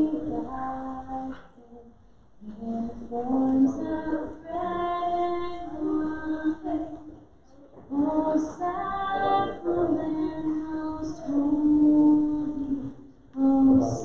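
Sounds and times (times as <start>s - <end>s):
slow hymn singing: 0.0s - 14.0s.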